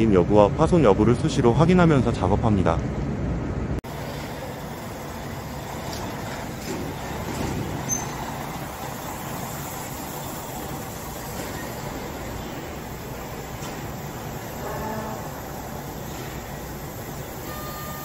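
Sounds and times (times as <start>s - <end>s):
heavy machinery running: 3.9s - 18.0s.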